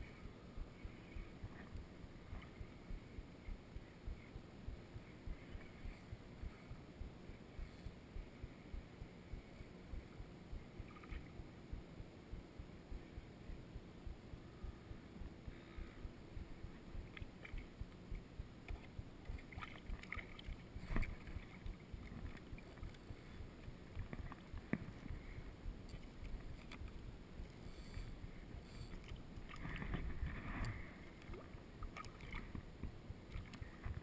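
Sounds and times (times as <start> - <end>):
shallow water sloshing: 18.6 - 28.2, 28.8 - 32.7, 33.3 - 34.0.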